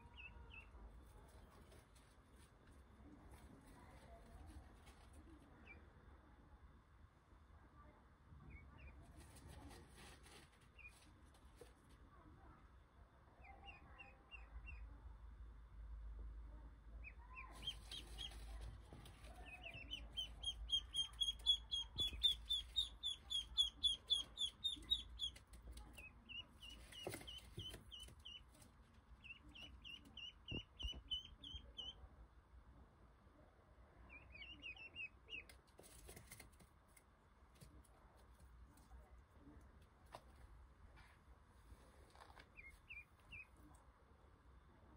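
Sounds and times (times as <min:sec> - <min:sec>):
ducklings peeping: 0:00.0 - 0:00.8, 0:08.5 - 0:09.0, 0:13.4 - 0:14.9, 0:17.0 - 0:32.0, 0:34.1 - 0:35.7, 0:42.4 - 0:43.6.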